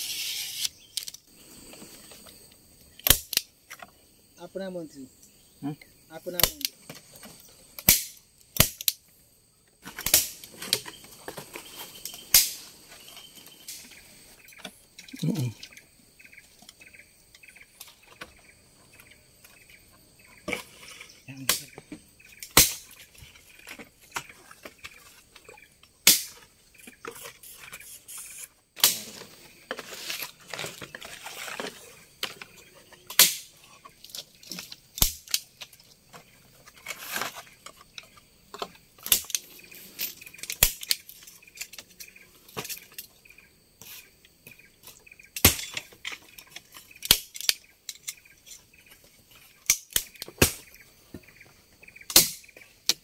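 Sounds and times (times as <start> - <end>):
leaf rustling: 0.0 - 2.5, 27.1 - 37.9
sharp knocks and cracks: 6.4 - 9.0, 9.8 - 11.6, 12.3 - 12.7, 21.4 - 23.0, 23.6 - 27.0, 28.8 - 29.8, 33.1 - 36.4, 37.2 - 39.4, 45.4 - 48.4, 49.6 - 51.3, 52.1 - 53.0.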